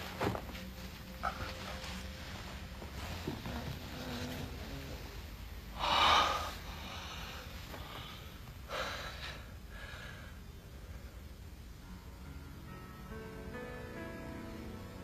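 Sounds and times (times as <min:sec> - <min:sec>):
low steady hum: 0:00.0 - 0:15.0
person breathing heavily: 0:03.4 - 0:11.5.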